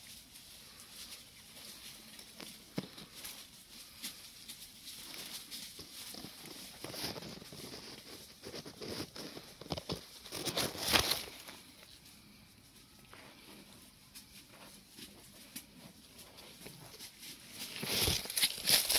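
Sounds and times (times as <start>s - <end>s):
dry leaves rustling and crackling: 0.0s - 12.0s, 14.3s - 18.9s.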